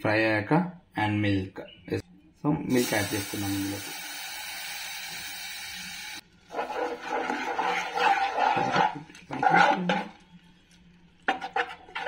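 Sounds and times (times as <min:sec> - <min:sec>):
steady hiss: 0:02.7 - 0:06.2
spatula scraping a pan: 0:06.5 - 0:10.4, 0:11.2 - 0:12.0.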